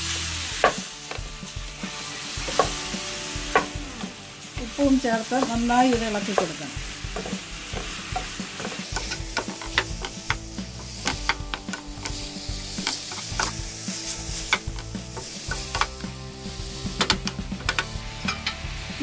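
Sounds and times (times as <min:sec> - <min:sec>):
low frying sizzle: 0:00.0 - 0:19.0
wooden spatula knocking on pan: 0:02.4 - 0:04.0, 0:05.3 - 0:13.7, 0:14.4 - 0:16.1.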